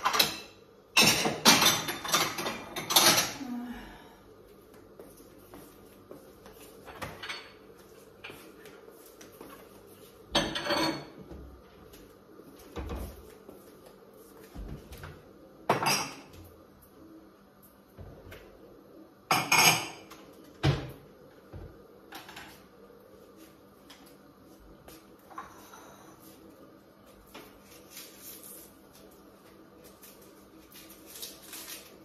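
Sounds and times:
dishes and cutlery clattering: 0.0s - 3.4s, 10.3s - 11.2s, 19.3s - 20.1s.

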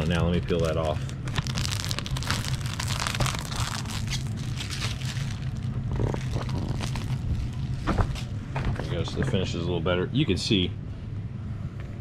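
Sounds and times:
plastic film peeling and crinkling: 0.0s - 8.4s
steady low hum: 0.0s - 12.0s.

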